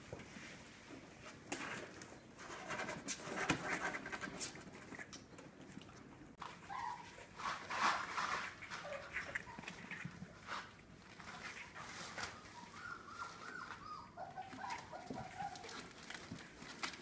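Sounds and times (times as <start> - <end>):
puppies scrambling on foam mats: 0.0 - 17.0
puppy whining: 6.5 - 7.4, 8.6 - 10.4, 11.3 - 16.0
puppies panting: 8.6 - 16.8.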